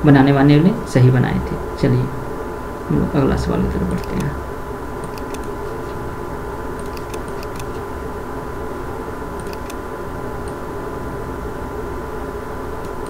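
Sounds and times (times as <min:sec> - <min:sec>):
low hum and hiss: 0:00.0 - 0:13.0
computer mouse clicks: 0:04.0 - 0:04.3, 0:05.0 - 0:06.0, 0:06.8 - 0:07.8, 0:09.4 - 0:09.8, 0:12.8 - 0:13.0.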